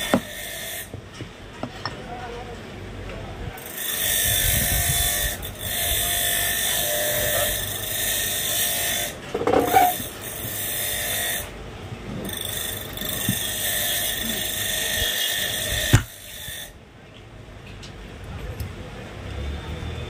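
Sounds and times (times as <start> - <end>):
small electric motor whirring: 3.6 - 11.5.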